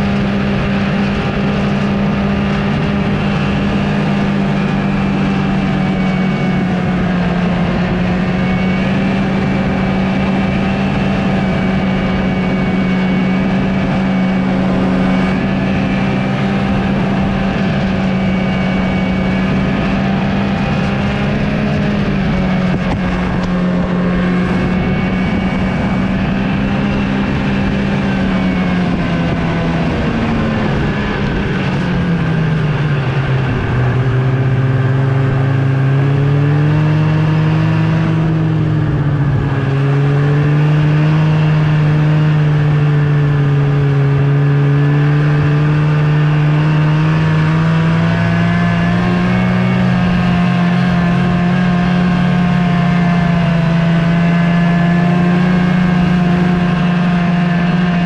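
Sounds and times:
snowmobile engine running: 0.0 - 58.0.

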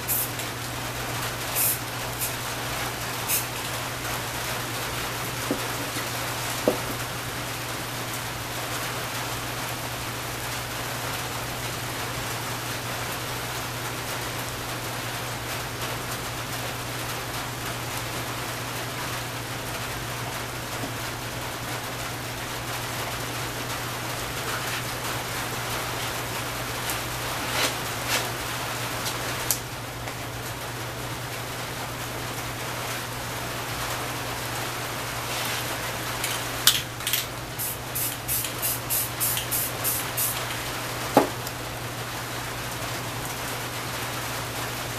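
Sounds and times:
steady hiss: 0.0 - 7.7, 33.8 - 41.4.

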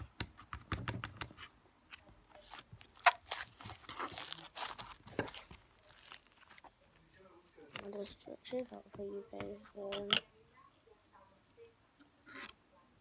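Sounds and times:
beads crunching and crackling: 2.3 - 6.8
slime squeezed and kneaded: 2.4 - 6.7.

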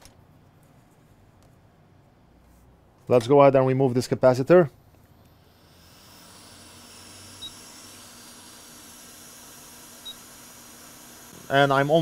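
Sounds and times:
hot air station hissing: 5.4 - 12.0.

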